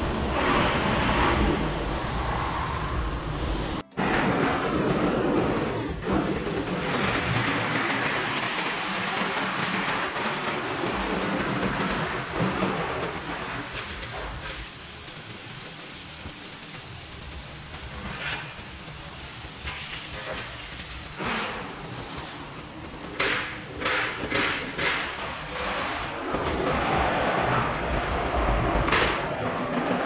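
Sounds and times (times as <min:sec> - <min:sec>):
pressure washer spraying car: 0:06.1 - 0:27.4.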